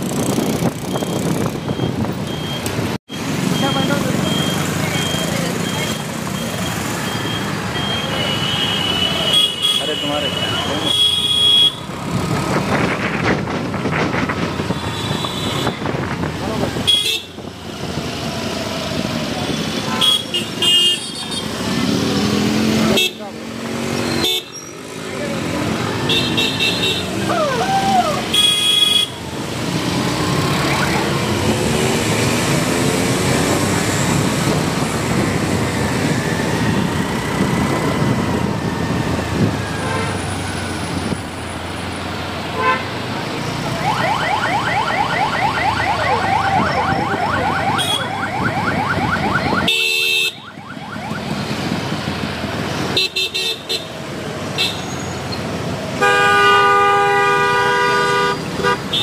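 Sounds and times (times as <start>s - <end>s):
slow-moving cars: 0.0s - 59.0s
car horns: 7.7s - 11.9s, 14.7s - 15.9s, 16.8s - 17.5s, 19.5s - 21.6s, 22.8s - 23.2s, 24.0s - 24.6s, 26.0s - 27.3s, 28.2s - 29.3s, 42.5s - 43.0s, 47.6s - 48.2s, 49.4s - 50.6s, 52.9s - 55.2s, 56.0s - 59.0s
loud steady car horn: 8.2s - 11.9s, 14.7s - 15.8s, 16.9s - 17.4s, 19.9s - 21.5s, 22.9s - 23.2s, 26.0s - 27.2s, 28.3s - 29.2s, 42.6s - 43.0s, 47.7s - 48.2s, 49.6s - 50.5s, 53.0s - 54.0s, 54.6s - 55.0s, 56.0s - 59.0s.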